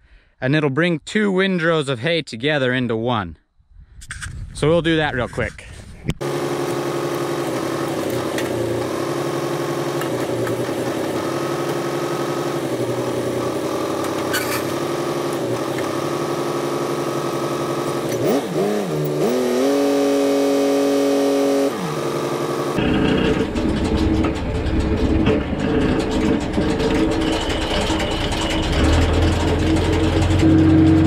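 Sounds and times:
tractor diesel engine running: 6.2s - 19.6s, 21.9s - 31.0s.

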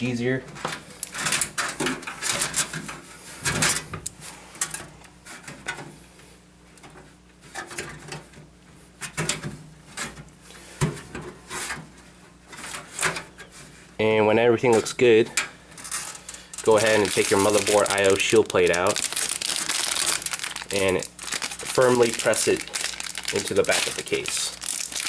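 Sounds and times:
rustling: 15.8s - 25.0s.

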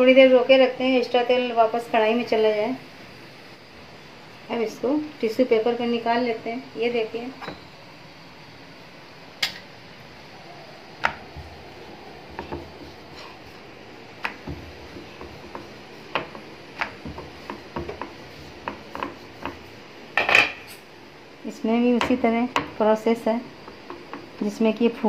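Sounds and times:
rolling pin knocking on wooden board: 12.3s - 12.9s, 14.2s - 19.7s.

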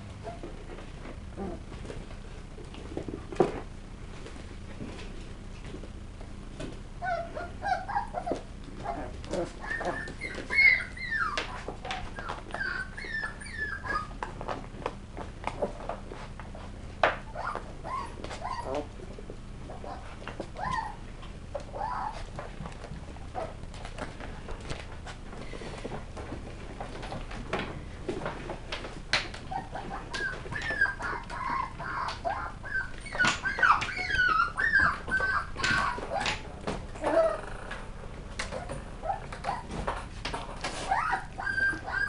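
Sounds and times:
puppies yipping and whining: 7.0s - 14.5s, 17.1s - 19.0s, 19.6s - 23.6s, 28.8s - 37.7s, 38.4s - 42.0s.

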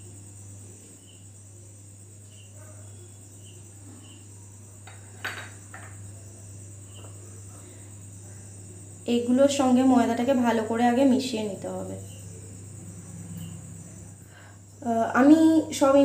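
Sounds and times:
light knocks against bowl: 4.9s - 6.0s.

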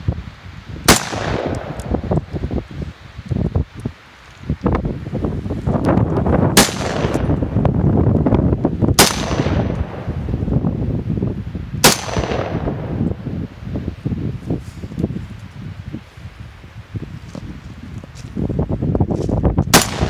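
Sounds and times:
rifle shots: 0.9s - 2.1s, 6.5s - 7.5s, 9.0s - 10.2s, 11.8s - 13.0s, 19.7s - 20.0s.

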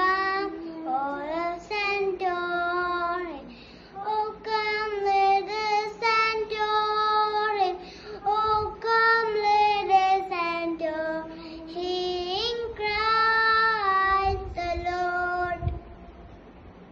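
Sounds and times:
boy singing unaccompanied: 0.0s - 15.9s.

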